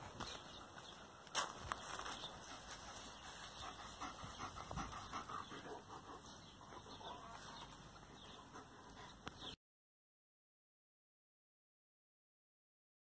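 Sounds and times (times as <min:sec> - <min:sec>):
dog panting softly: 0:02.2 - 0:09.6.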